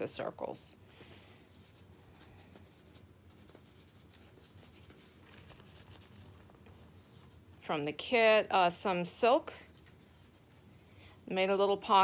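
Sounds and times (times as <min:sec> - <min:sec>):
paper rustling and crinkling: 0:01.5 - 0:07.5.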